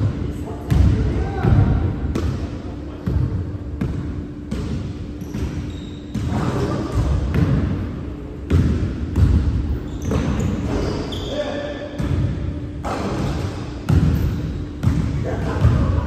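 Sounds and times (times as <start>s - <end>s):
steady low hum: 0.0s - 16.0s
basketball bouncing on hardwood floor: 8.5s - 10.5s, 13.2s - 15.9s.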